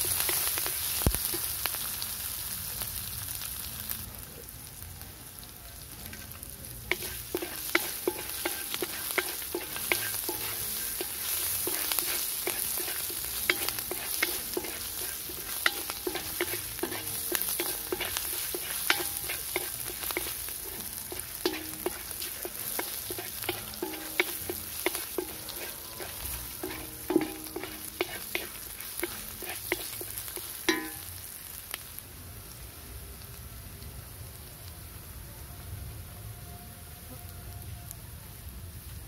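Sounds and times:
food sizzling in oil: 0.0s - 35.2s
spatula knocking metal pan: 6.9s - 31.2s.

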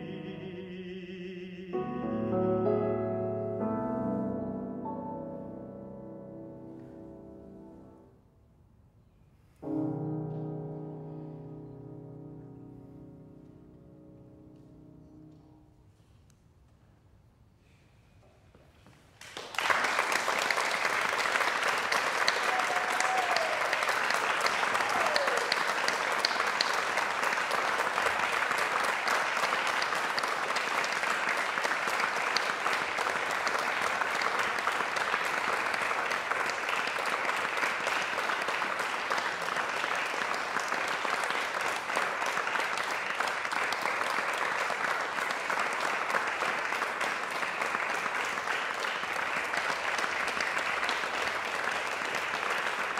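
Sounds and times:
audience applause: 19.2s - 52.9s.

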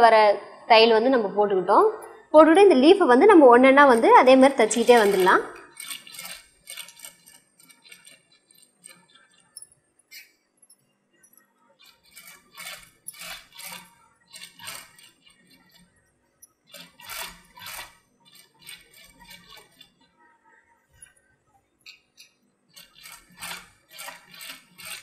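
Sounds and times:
sewing machine clattering: 3.8s - 10.3s, 11.8s - 16.0s, 16.6s - 20.1s, 21.9s - 25.0s.

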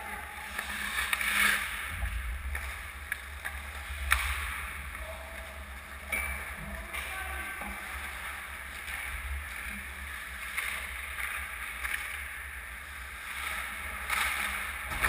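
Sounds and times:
skate blades scraping on ice: 0.4s - 1.9s.

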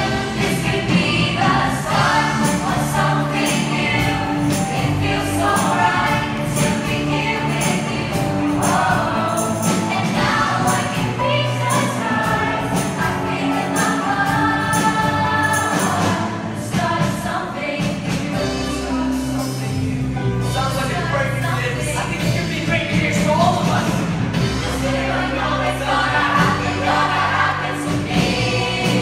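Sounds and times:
group singing: 0.0s - 20.1s, 24.3s - 29.0s
pop music with steady beat: 0.0s - 20.2s.

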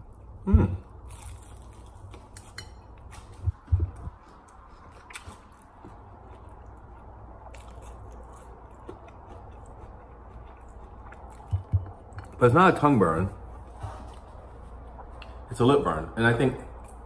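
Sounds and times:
man biting and chewing: 0.2s - 12.4s
low thumps: 11.4s - 12.2s.

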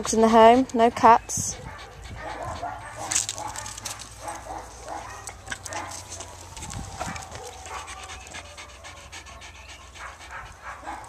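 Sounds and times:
dog claws clicking on concrete: 2.9s - 7.8s.

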